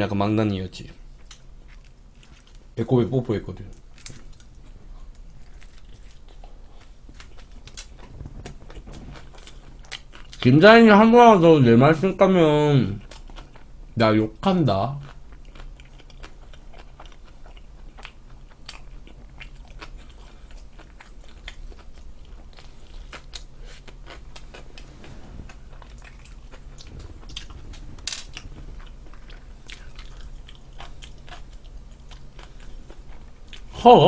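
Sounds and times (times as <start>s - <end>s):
chewing with wet mouth clicks: 1.2s - 2.6s, 3.7s - 10.5s, 15.0s - 24.8s, 25.5s - 33.7s
low hum: 15.1s - 34.0s.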